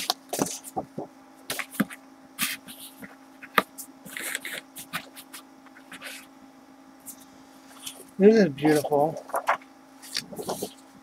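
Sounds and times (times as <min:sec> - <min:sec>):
faint electrical hum: 0:00.0 - 0:11.0
paper rustling and sliding: 0:01.5 - 0:06.3, 0:08.7 - 0:10.8.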